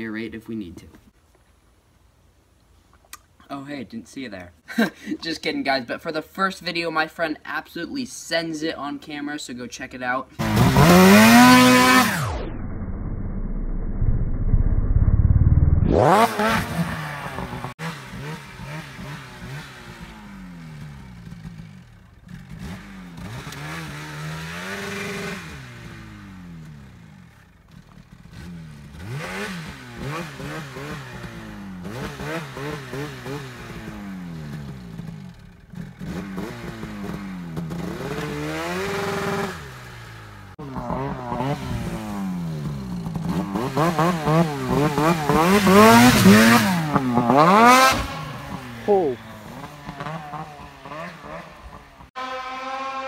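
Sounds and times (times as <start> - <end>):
snowmobile engine revving: 10.4 - 12.4, 15.9 - 27.4, 28.3 - 53.0.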